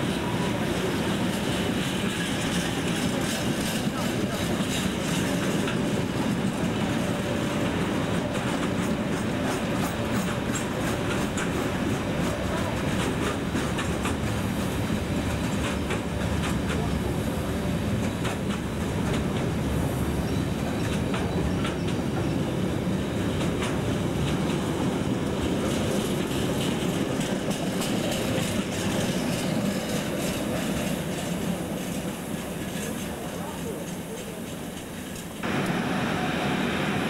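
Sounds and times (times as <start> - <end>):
train wheels rumbling on rail: 0.0 - 37.0
wheels clicking over rail joints: 7.6 - 14.4, 20.7 - 35.7.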